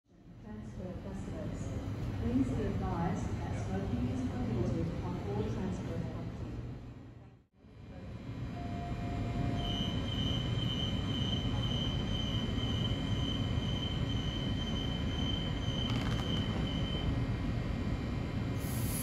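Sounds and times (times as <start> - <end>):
electric train low hum: 7.8 - 19.0.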